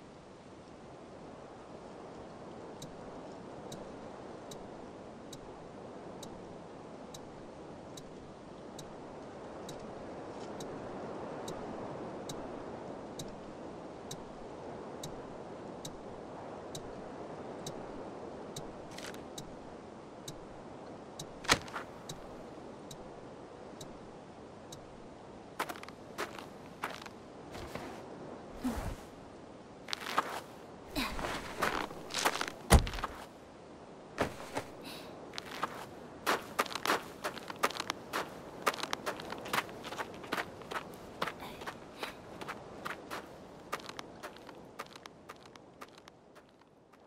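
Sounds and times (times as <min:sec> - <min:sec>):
wind: 0:00.0 - 0:47.0
hazard light indicator ticking: 0:02.8 - 0:03.0, 0:03.6 - 0:04.7, 0:06.2 - 0:09.0, 0:13.1 - 0:13.5, 0:14.1 - 0:14.4, 0:15.0 - 0:16.0, 0:16.7 - 0:17.0, 0:17.6 - 0:17.8, 0:21.2 - 0:21.4, 0:22.0 - 0:23.1.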